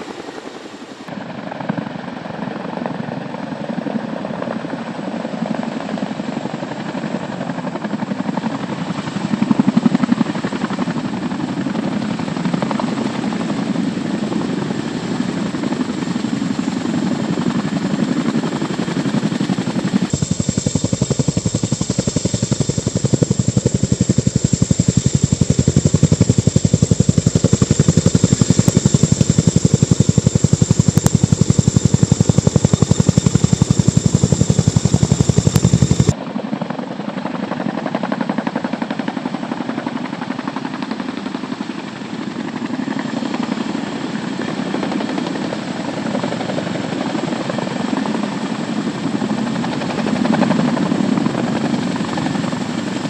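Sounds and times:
helicopter rotor beating: 0.0s - 53.0s
high turbine whine: 19.9s - 36.2s.

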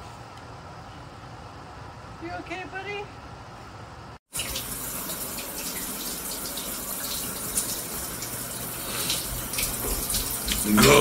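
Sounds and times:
shower water running: 4.3s - 11.0s.

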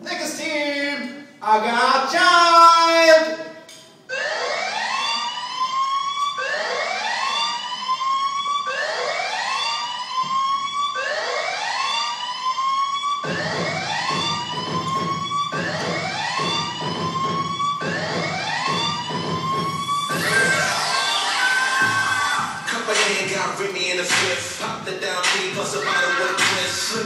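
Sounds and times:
siren wail effect: 4.1s - 22.7s
dance music: 5.2s - 27.0s
heavy bass beat: 13.2s - 20.9s, 21.8s - 27.0s.

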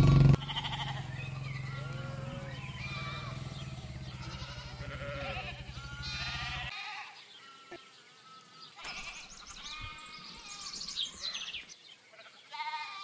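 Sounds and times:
motorcycle engine running: 0.0s - 6.7s
sheep bleating: 0.2s - 11.4s, 12.1s - 13.0s.

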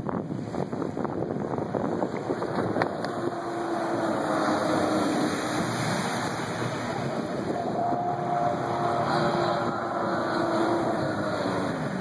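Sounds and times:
rushing water noise: 0.0s - 12.0s
jet boat engine drone: 0.1s - 12.0s.

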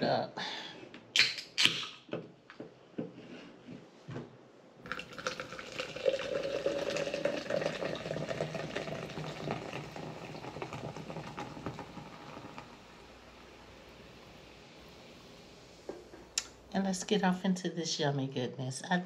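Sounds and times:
soda pouring and fizzing: 4.8s - 16.0s.

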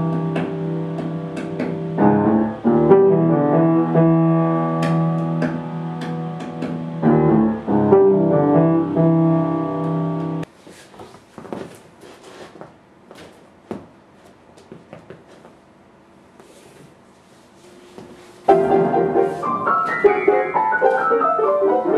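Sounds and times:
solo piano chords: 0.0s - 10.5s, 18.5s - 21.9s.

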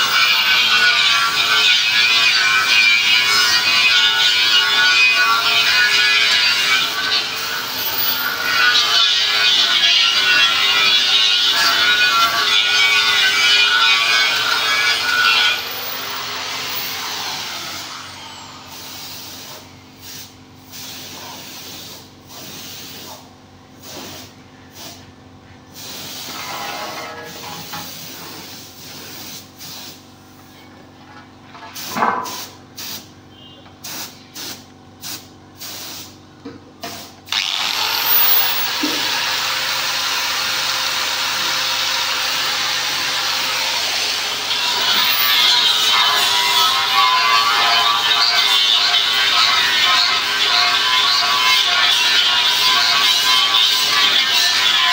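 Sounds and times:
paint spray gun hissing: 33.8s - 36.1s.

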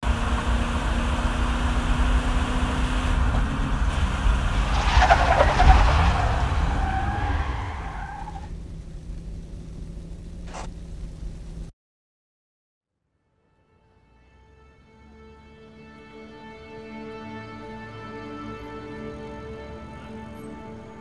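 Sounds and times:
car engine with road rumble: 0.0s - 11.7s
tyres screeching: 2.8s - 8.5s.

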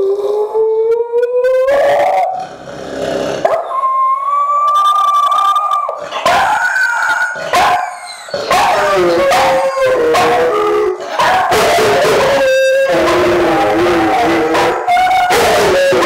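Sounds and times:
dogs howling together: 3.4s - 16.0s.

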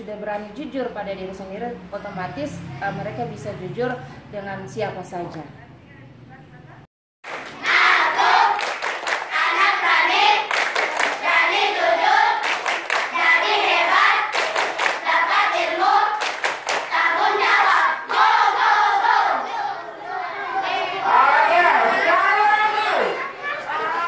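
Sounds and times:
hands clapping rhythmically: 7.2s - 18.5s
children singing together: 7.5s - 21.3s.

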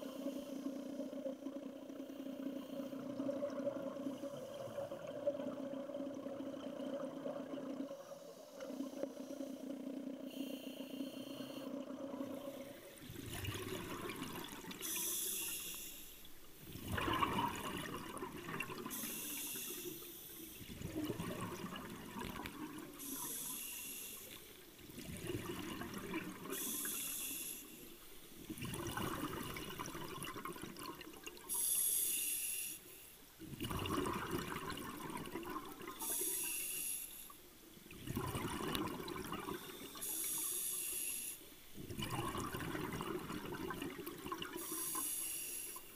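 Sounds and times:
regulator hissing inhalation: 14.8s - 16.3s, 18.9s - 20.7s, 23.0s - 24.5s, 26.5s - 28.0s, 31.5s - 33.0s, 36.0s - 37.4s, 39.6s - 41.5s, 44.6s - 45.9s
bubbling exhalation: 16.8s - 19.0s, 38.0s - 39.6s, 41.9s - 44.6s.

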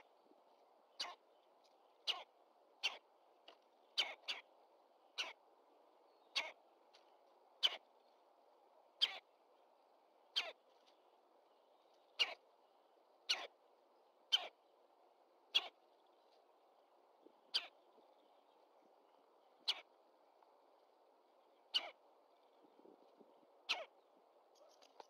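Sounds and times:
faint steady hiss: 0.0s - 25.0s
woodpecker calling: 1.0s - 1.3s, 2.0s - 3.1s, 3.8s - 4.5s, 5.2s - 5.4s, 6.3s - 6.6s, 7.6s - 7.9s, 9.0s - 9.3s, 10.3s - 10.6s, 12.0s - 12.4s, 13.3s - 13.5s, 14.3s - 14.6s, 15.5s - 16.2s, 17.4s - 18.0s, 19.6s - 20.0s, 21.6s - 22.6s, 23.6s - 24.0s.

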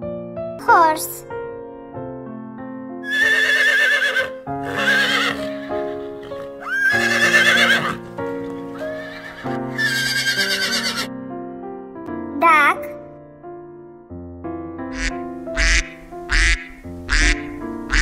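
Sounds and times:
gentle piano tune: 0.0s - 3.0s, 4.3s - 18.0s
horse neighing: 3.0s - 11.1s, 15.0s - 18.0s.

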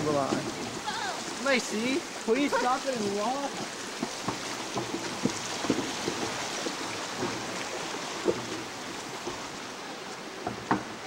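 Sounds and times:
shallow river rushing: 0.0s - 11.0s
footsteps on wooden planks: 3.2s - 9.6s.

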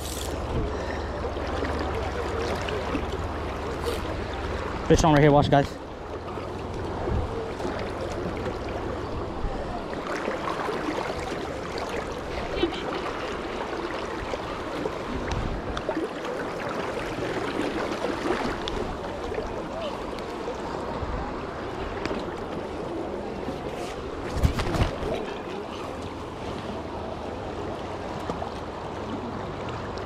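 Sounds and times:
river rushing and gurgling: 0.0s - 30.0s.

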